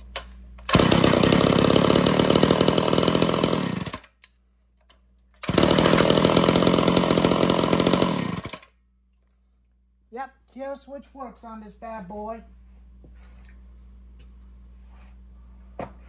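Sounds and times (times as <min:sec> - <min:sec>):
chainsaw engine running: 0:00.6 - 0:04.1, 0:05.4 - 0:08.7.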